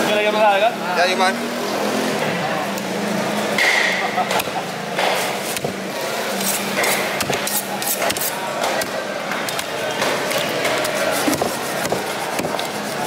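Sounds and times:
knife chopping on a block: 0:06.8 - 0:08.9, 0:11.2 - 0:12.7.

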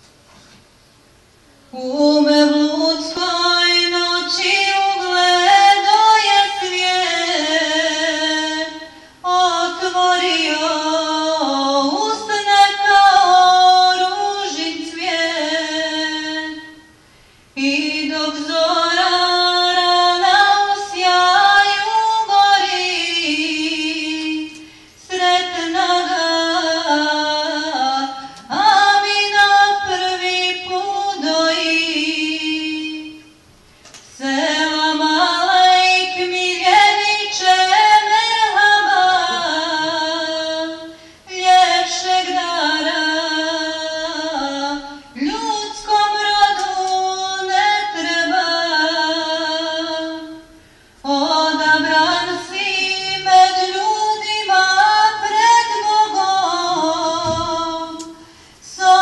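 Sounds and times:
solo voice chanting: 0:34.6 - 0:45.8, 0:51.3 - 0:58.2.

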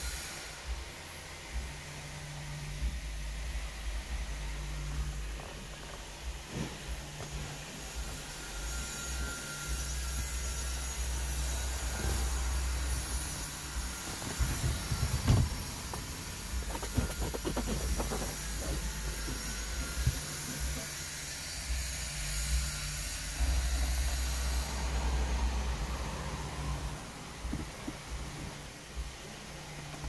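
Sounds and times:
low rumble with hiss: 0:00.0 - 0:30.0
hand brushing over seat upholstery: 0:05.3 - 0:08.4, 0:11.9 - 0:21.0, 0:27.4 - 0:29.5.

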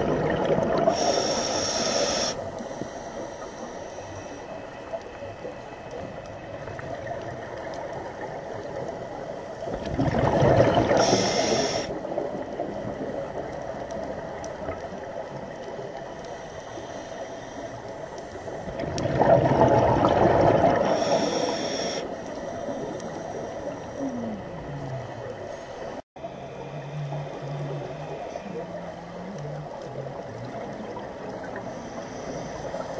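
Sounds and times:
bubbling of exhaled air underwater: 0:00.0 - 0:02.3, 0:06.0 - 0:16.0, 0:18.6 - 0:22.0
faint underwater hiss: 0:00.0 - 0:09.8, 0:10.5 - 0:32.9.

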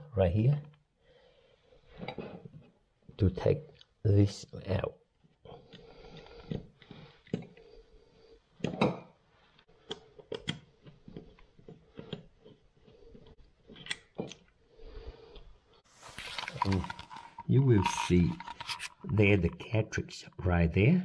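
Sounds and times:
small clicks taps and scrapes: 0:05.6 - 0:07.6, 0:09.6 - 0:14.6, 0:16.2 - 0:19.2.

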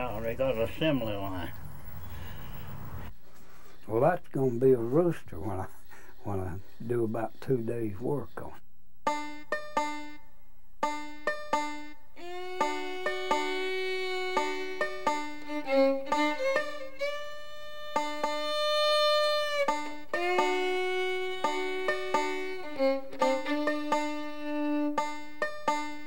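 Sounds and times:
banjo picking: 0:09.0 - 0:26.0
fiddle long notes: 0:09.1 - 0:26.0.

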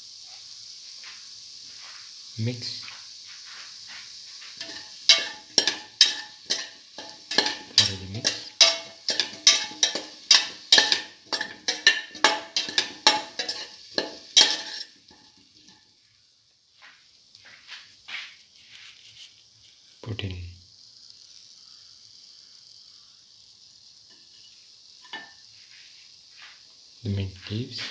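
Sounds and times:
faint frying sizzle: 0:00.0 - 0:27.9
metal spoon scraping a pot: 0:04.6 - 0:15.8.

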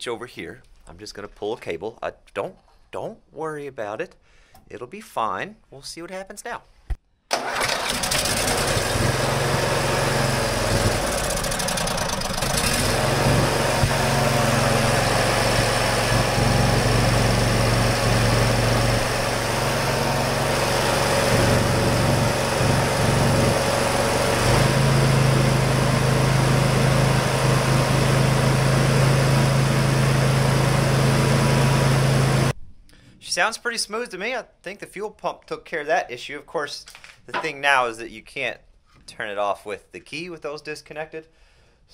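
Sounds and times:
lawn tractor engine running: 0:07.3 - 0:32.5.

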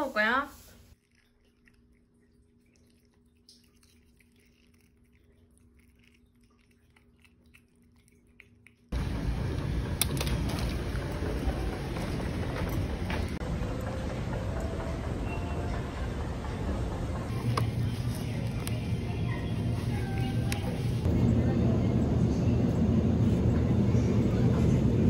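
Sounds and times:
low steady hum: 0:00.0 - 0:25.0
cat licking wet ticks: 0:00.9 - 0:09.0
busy indoor shopping area noise: 0:09.0 - 0:25.0.

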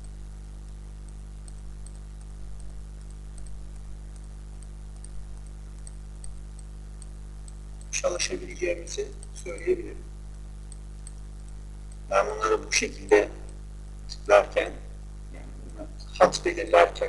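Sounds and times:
low electrical hum: 0:00.0 - 0:17.0
computer mouse clicking: 0:01.0 - 0:07.9, 0:10.7 - 0:12.1.

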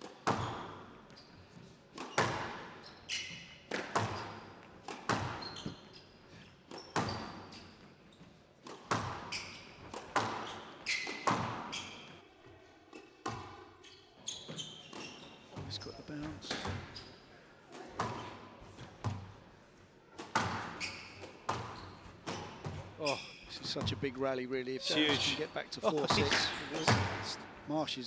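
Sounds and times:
squash ball hitting rackets and walls: 0:00.0 - 0:08.0, 0:08.6 - 0:12.3, 0:12.9 - 0:13.9, 0:14.5 - 0:17.1, 0:17.7 - 0:19.5, 0:20.1 - 0:24.0, 0:26.0 - 0:27.4
shoes squeaking on court floor: 0:00.0 - 0:19.5, 0:20.1 - 0:24.2, 0:24.8 - 0:27.5.

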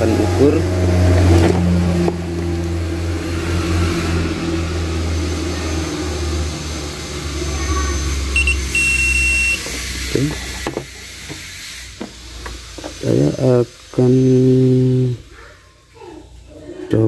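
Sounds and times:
multimeter continuity beeps: 0:08.3 - 0:09.7.

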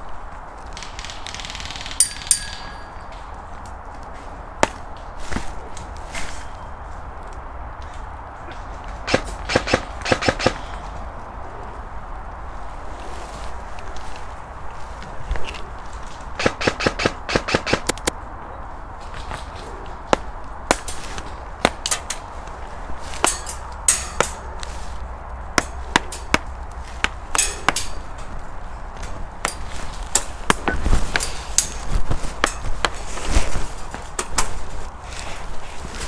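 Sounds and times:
airsoft gunfire cracks: 0:16.4 - 0:18.1.

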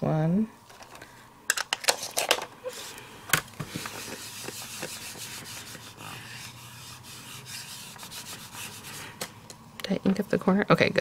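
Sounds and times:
ink pad rubbing on stamp: 0:03.7 - 0:09.1.

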